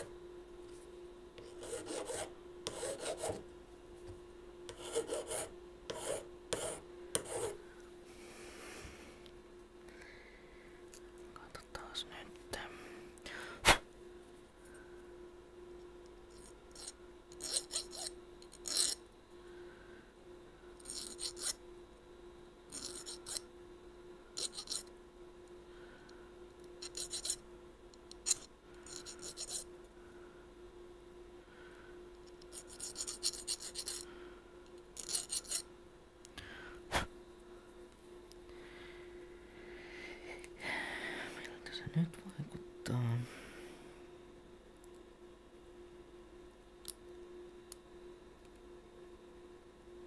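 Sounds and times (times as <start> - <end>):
hand file rasping: 1.5 - 3.4, 4.7 - 7.6, 16.8 - 19.0, 20.8 - 21.6, 22.7 - 23.4, 24.4 - 24.8, 26.8 - 27.4, 28.3 - 29.6, 32.5 - 34.0, 35.0 - 35.6.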